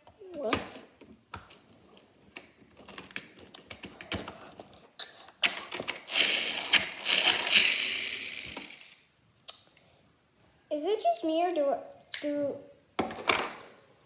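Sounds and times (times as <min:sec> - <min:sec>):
plastic toy joints clicking: 0:05.4 - 0:09.0.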